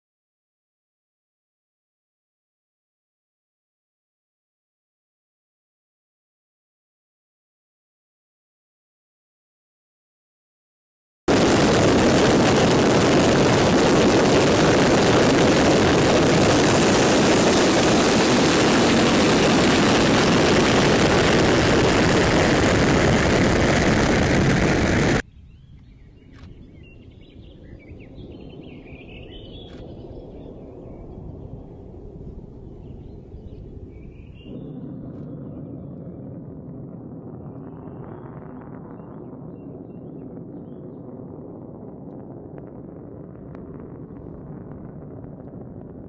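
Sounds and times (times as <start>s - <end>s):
rocket engines crackling roar: 11.3s - 25.2s, 28.4s - 46.0s
faint low rocket rumble: 11.3s - 46.0s.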